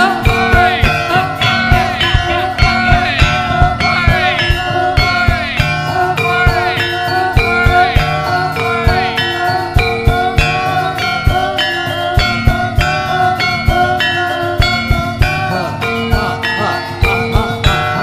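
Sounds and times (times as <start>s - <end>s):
quick dense drum pattern: 0.0s - 14.0s
metallophones ringing: 0.0s - 18.0s.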